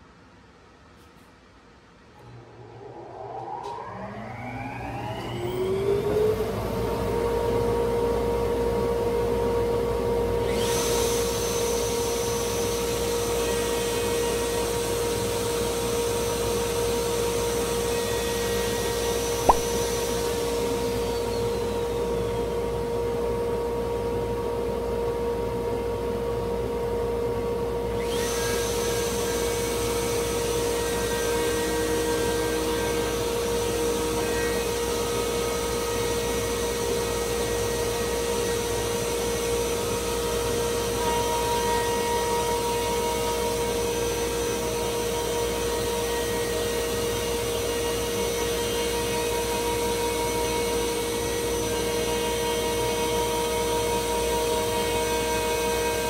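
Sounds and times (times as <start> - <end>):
router whining: 2.2 - 7.5, 10.3 - 15.9, 16.6 - 22.8, 28.0 - 48.8
router cutting hiss: 10.4 - 14.8, 28.0 - 41.0
sharp click: 19.5 - 19.7.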